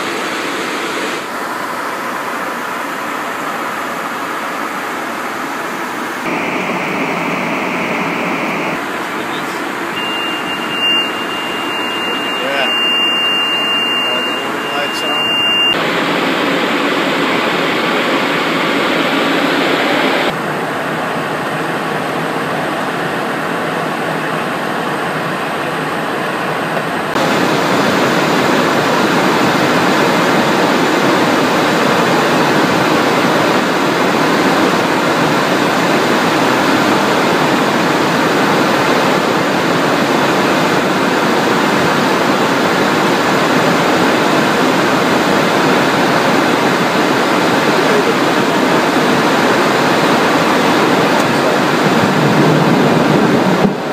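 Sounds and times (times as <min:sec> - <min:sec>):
jet cockpit airflow and engine noise: 0:00.0 - 0:53.9.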